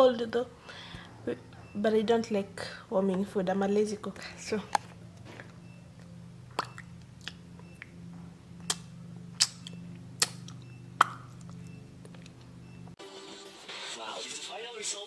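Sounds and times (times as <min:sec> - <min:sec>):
low hum: 0:00.0 - 0:13.0
mouth smacks while chewing: 0:06.5 - 0:07.9, 0:08.6 - 0:12.5.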